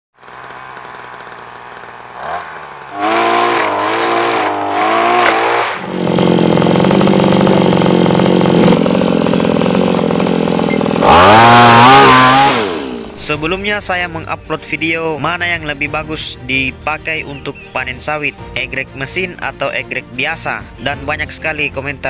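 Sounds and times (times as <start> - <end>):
small two-stroke engines revving: 0.2 - 13.6.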